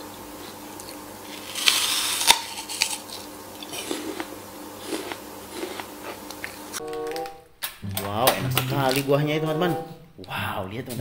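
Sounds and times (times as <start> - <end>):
chewing crunches: 0.5 - 6.6
apple bite crunch: 0.8 - 6.4.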